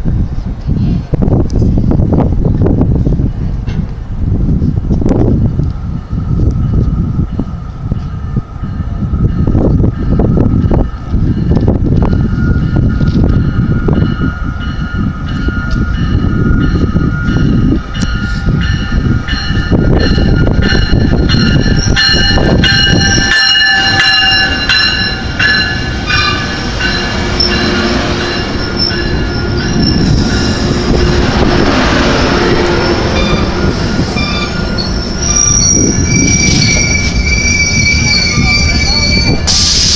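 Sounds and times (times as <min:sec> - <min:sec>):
train cars rumbling: 0:00.0 - 0:39.9
wheels and brakes squealing: 0:25.7 - 0:31.2, 0:32.6 - 0:39.8
rushing hiss: 0:39.4 - 0:39.9.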